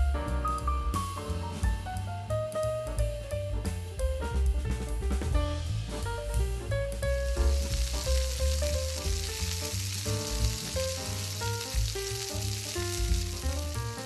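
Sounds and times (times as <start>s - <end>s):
meat sizzling in a pan: 7.0s - 14.0s.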